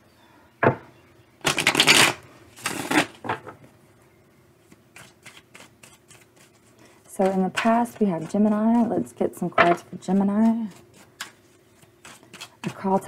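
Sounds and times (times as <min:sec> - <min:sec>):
cards being shuffled: 0:01.5 - 0:03.2.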